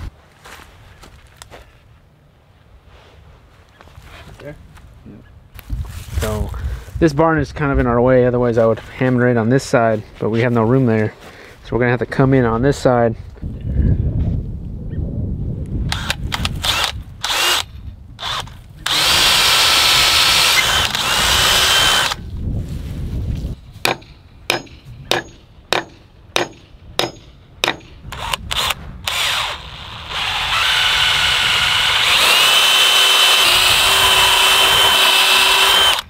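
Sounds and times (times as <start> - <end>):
cordless drill boring into wood: 15.9 - 22.2, 28.1 - 36.0.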